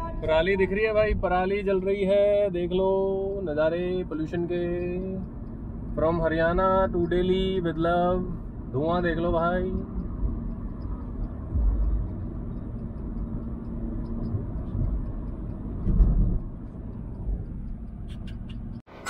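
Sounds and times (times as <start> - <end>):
car road and engine rumble: 0.0 - 19.0
heavy low thumps: 11.1 - 17.5.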